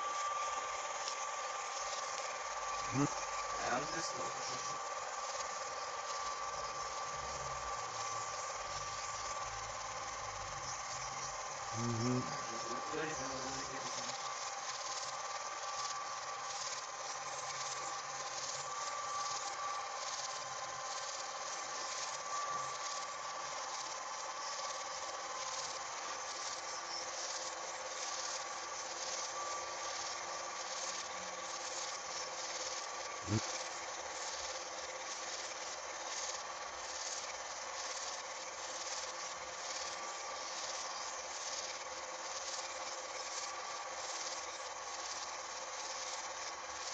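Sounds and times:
film projector rasping: 0:00.0 - 0:46.9.

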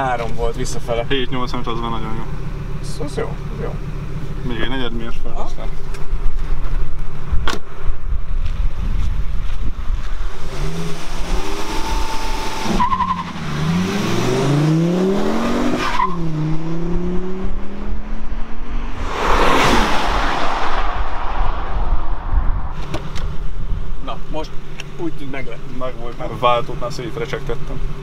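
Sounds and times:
car engine revving at full throttle: 0:10.2 - 0:28.0
loud rushing noise: 0:17.6 - 0:24.0.

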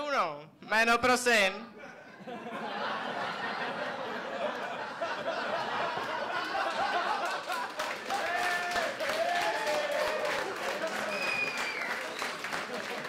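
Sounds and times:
audience laughing and chattering: 0:02.0 - 0:08.3, 0:10.5 - 0:11.8, 0:12.4 - 0:13.0.

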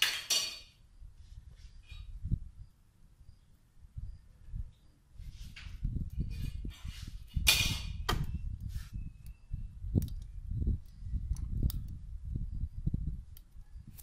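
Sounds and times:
skewers scraping grill grate: 0:05.2 - 0:09.0.

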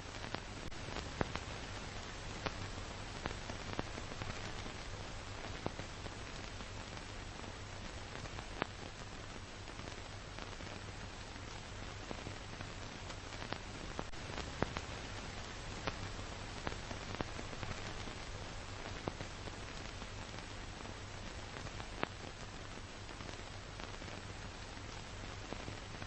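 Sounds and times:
film surface hiss: 0:00.0 - 0:26.0.

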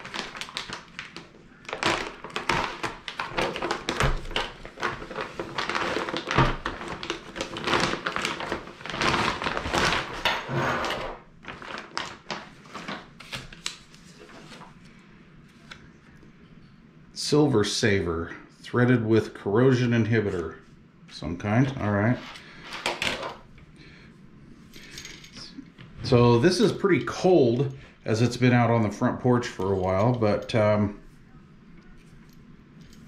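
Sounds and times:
plastic bag crinkling: 0:00.0 - 0:14.8.

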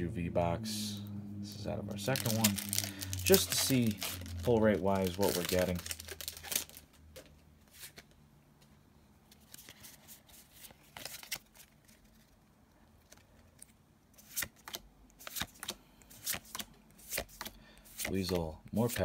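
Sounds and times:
trading cards being flipped: 0:01.9 - 0:08.2, 0:09.3 - 0:12.3, 0:13.0 - 0:19.0.

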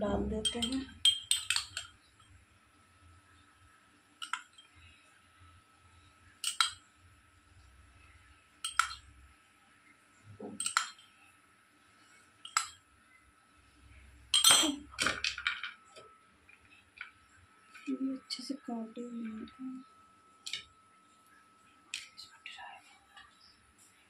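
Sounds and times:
spoon clinking against pot: 0:00.4 - 0:01.9, 0:06.4 - 0:06.8, 0:08.6 - 0:09.0, 0:10.6 - 0:11.1, 0:12.4 - 0:12.8, 0:14.3 - 0:14.9.

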